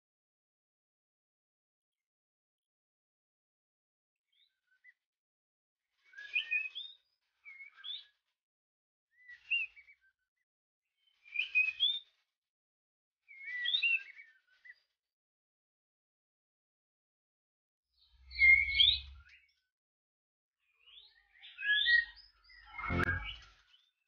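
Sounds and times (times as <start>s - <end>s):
bird singing whistles and warbles: 6.0s - 8.2s, 9.1s - 10.1s, 11.0s - 12.2s, 13.3s - 14.9s, 18.2s - 19.6s, 20.7s - 24.0s.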